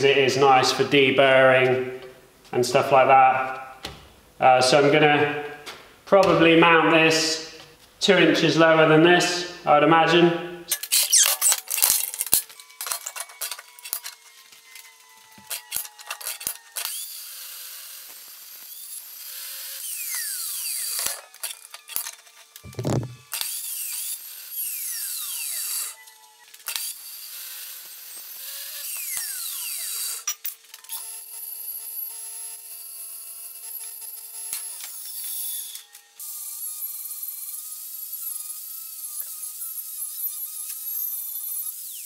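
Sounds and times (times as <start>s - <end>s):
angle grinder on steel: 10.7s - 31.0s, 33.4s - 42.0s
chop saw cutting steel: 10.7s - 42.0s.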